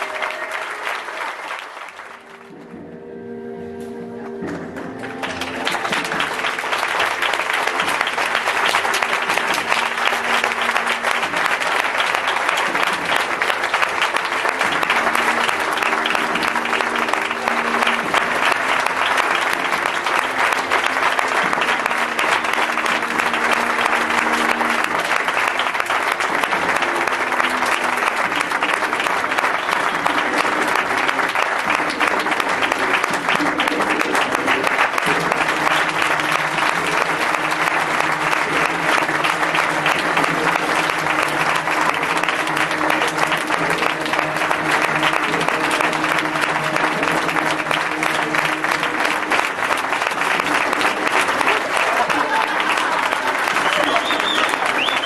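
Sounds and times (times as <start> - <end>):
audience applauding: 0.0 - 55.0
music playing: 0.0 - 55.0.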